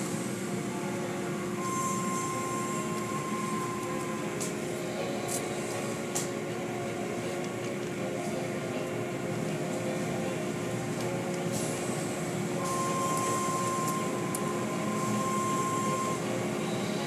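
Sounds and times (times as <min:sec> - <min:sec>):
car wash machinery hum: 0:00.0 - 0:17.0.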